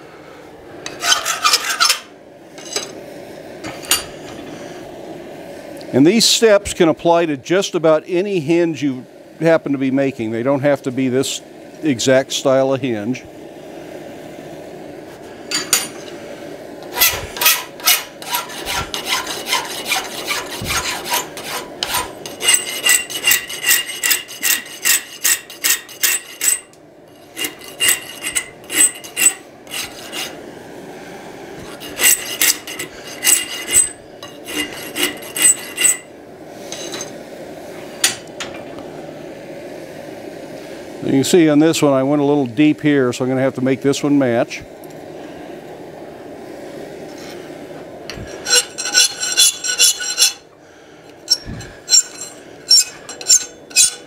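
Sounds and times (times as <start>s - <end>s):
hand file rasping on steel: 0.9s - 2.0s, 16.9s - 30.4s, 31.6s - 36.1s, 48.3s - 50.4s, 51.3s - 54.0s.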